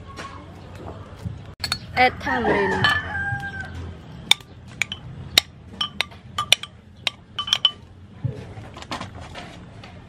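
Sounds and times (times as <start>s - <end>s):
metal spoon clinking in clay pot: 1.6s - 2.0s, 2.8s - 3.2s, 4.3s - 7.9s.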